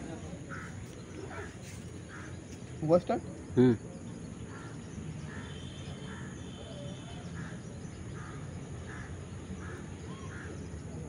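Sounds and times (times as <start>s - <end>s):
crow cawing: 0.5s - 2.4s, 4.5s - 6.4s, 7.4s - 10.6s.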